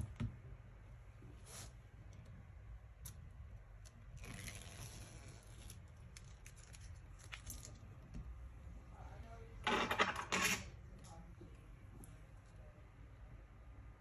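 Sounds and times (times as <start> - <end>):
plastic film crackling rustle: 4.2 - 8.0.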